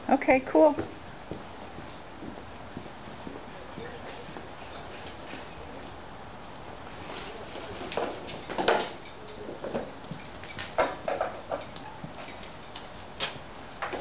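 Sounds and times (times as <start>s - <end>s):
footsteps: 0.6s - 14.0s
saddle hardware knocks and clinks: 8.0s - 12.5s.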